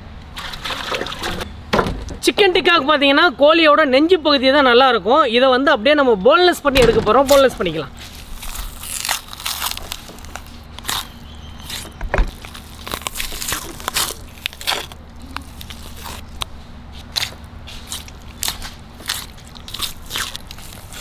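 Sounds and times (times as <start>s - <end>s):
meat torn from bone: 7.3s - 21.0s.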